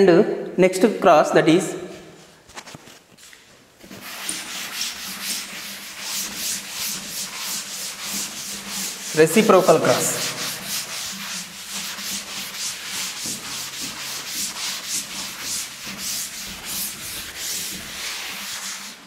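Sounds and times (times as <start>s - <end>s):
duster rubbing a chalkboard: 3.8s - 19.0s.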